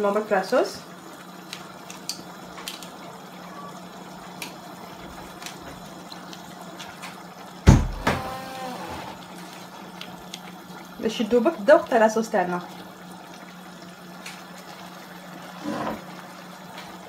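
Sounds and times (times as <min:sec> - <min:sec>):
sauce simmering with pops: 0:01.1 - 0:03.0, 0:03.9 - 0:08.0, 0:09.2 - 0:17.0.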